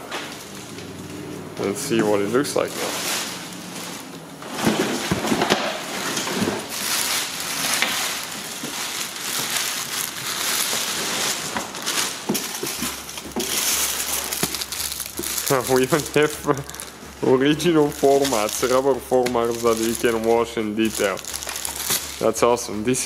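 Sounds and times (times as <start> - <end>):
plastic wrapping crinkling: 0.0 - 23.0
plastic knocking against cardboard box: 11.5 - 15.4.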